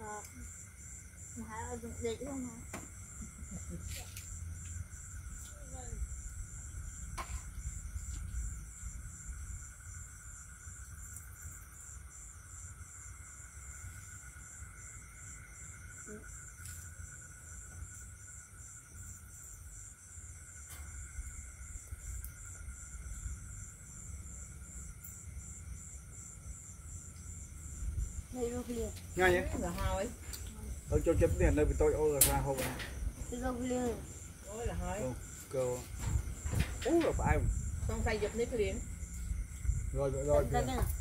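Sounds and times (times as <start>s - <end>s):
insects trilling: 0.0s - 41.0s
low rumble: 35.9s - 41.0s.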